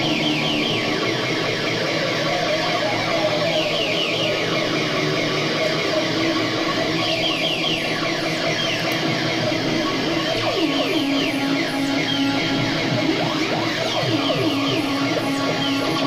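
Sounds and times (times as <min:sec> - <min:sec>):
electronic drone with falling chirps: 0:00.0 - 0:16.0.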